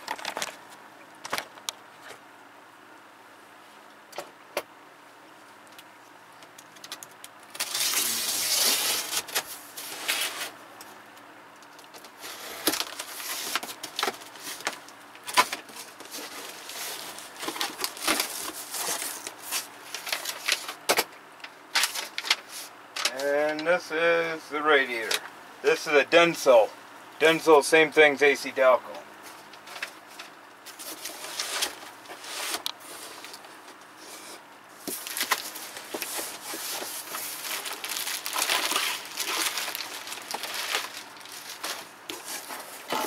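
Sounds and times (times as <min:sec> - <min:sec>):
rustling and scraping: 0:07.6 - 0:10.6, 0:11.7 - 0:20.8, 0:29.2 - 0:43.0.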